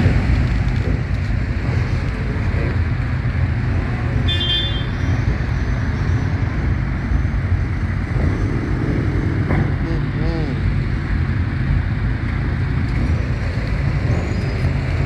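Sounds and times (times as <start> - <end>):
motorcycle engines rumbling: 0.0 - 15.0
vehicle horn toot: 4.3 - 5.0.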